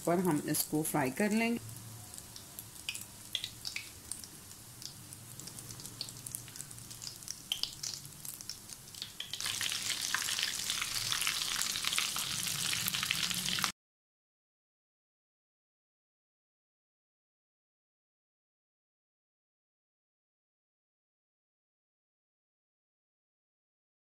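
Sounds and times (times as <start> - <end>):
food deep-frying in oil: 0.0 - 13.8.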